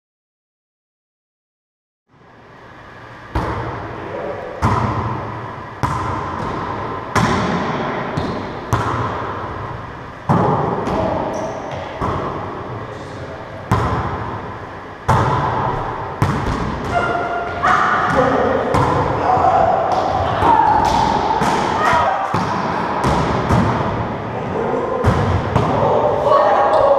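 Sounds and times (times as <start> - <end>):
ball slaps echoing in court: 3.3 - 3.9, 4.5 - 12.6, 13.7 - 24.2, 25.0 - 26.0.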